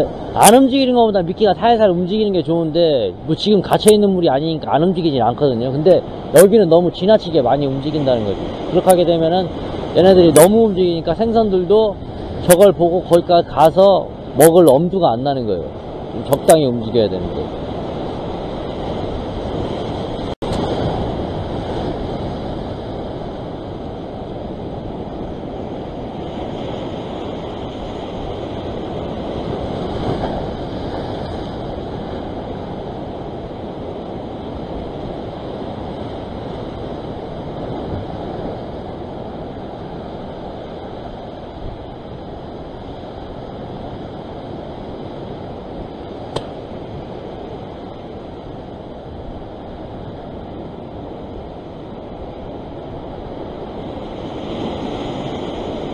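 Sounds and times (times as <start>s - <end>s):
sharp click: 46.3s - 46.6s.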